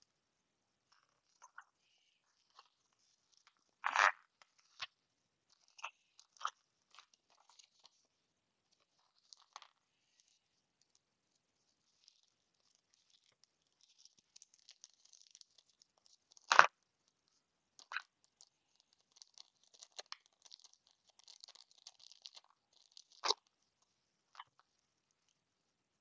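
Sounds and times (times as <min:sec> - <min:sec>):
plastic bag crinkling: 0:18.9 - 0:23.4.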